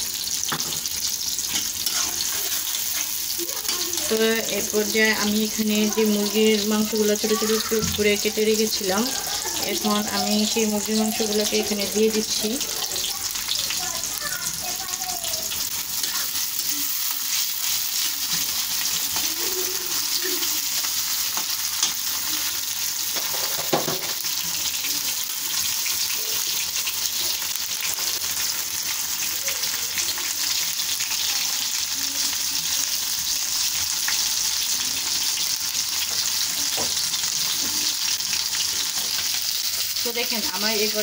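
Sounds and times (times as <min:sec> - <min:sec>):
chicken sizzling in hot oil: 0:00.0 - 0:41.0
metal spatula scraping pan: 0:01.4 - 0:03.8.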